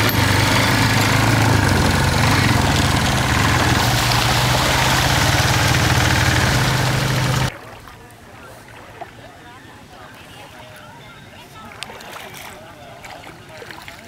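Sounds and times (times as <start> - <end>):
atv engine running: 0.0 - 7.5.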